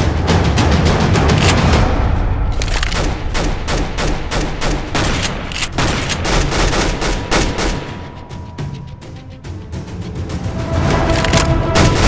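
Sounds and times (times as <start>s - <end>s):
rapid blaster fire: 2.9s - 8.0s, 11.8s - 12.0s.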